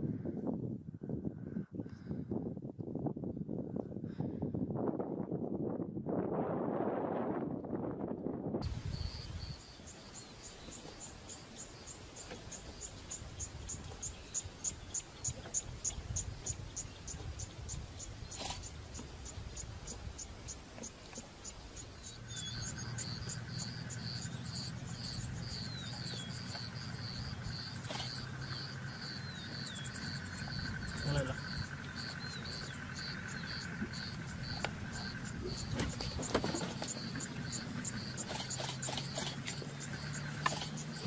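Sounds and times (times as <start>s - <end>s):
insects chirping: 8.6s - 41.0s
steady low hum: 8.6s - 41.0s
low rumble: 21.6s - 41.0s.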